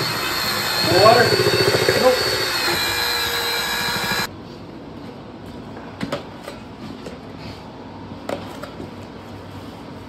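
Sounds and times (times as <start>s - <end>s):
electric drill mixer whirring: 0.0s - 4.3s.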